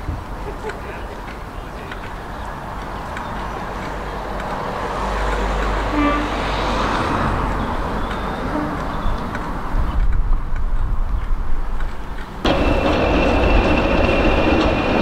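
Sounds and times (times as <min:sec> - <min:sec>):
short train horn toot: 0:05.8 - 0:06.4
diesel locomotive engine running: 0:12.2 - 0:15.0.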